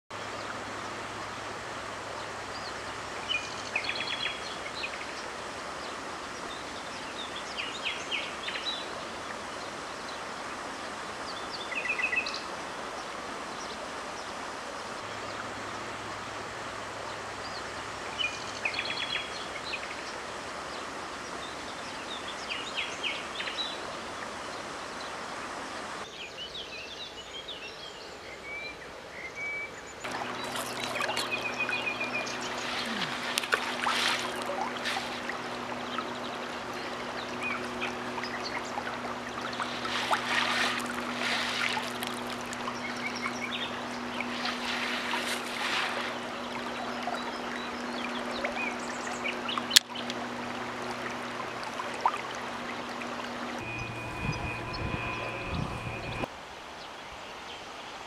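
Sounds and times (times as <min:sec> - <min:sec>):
bird calls: 0:29.2 - 0:50.3, 0:53.2 - 0:56.3
small birds chirping: 0:29.8 - 0:50.2, 0:53.6 - 0:56.3
steady rushing hiss: 0:30.1 - 0:46.5.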